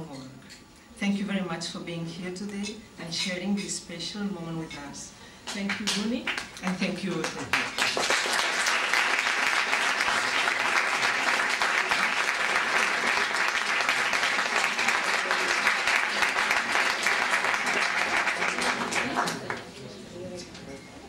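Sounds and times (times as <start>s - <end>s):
audience applauding: 7.1s - 19.7s.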